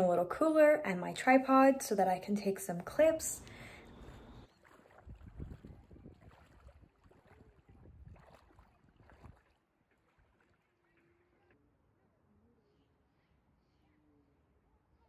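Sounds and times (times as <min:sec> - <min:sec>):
water sloshing and splashing: 0:02.6 - 0:11.5.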